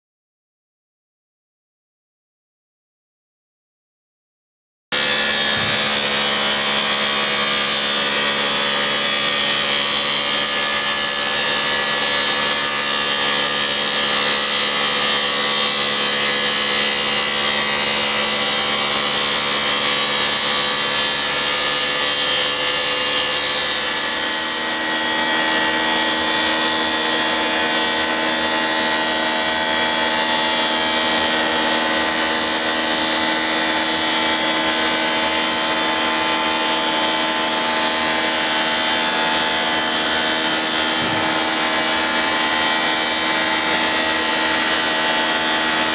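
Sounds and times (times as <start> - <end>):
wall planer motor whine: 4.9 - 45.9.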